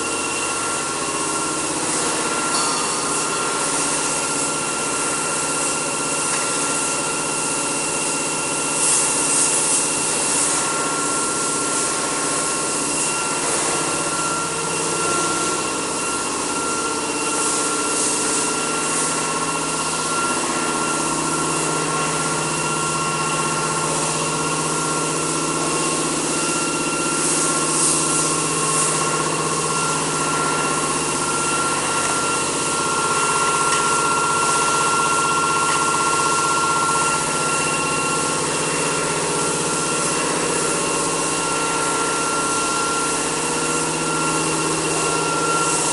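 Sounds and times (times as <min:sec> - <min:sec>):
machine hum with high whine: 0:00.0 - 0:45.9.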